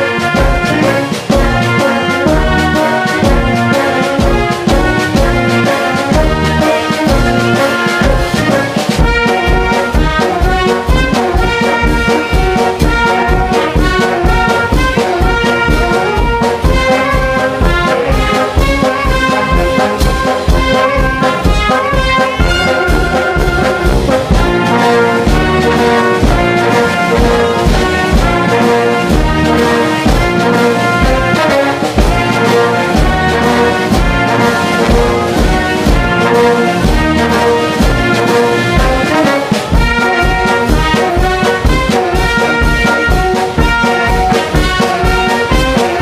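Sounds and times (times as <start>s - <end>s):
bass drum beat: 0.0s - 46.0s
trumpets and trombones playing: 0.0s - 46.0s.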